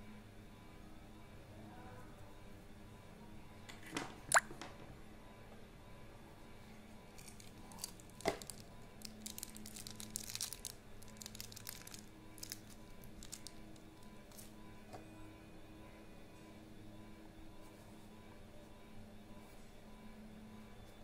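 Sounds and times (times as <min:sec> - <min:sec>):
plastic bag crinkling: 0:07.2 - 0:14.4.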